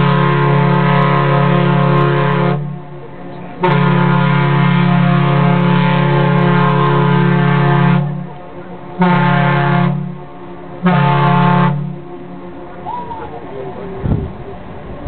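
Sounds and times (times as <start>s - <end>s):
deep ship's whistle blasts: 0.0s - 2.9s, 3.5s - 8.3s, 9.0s - 12.2s.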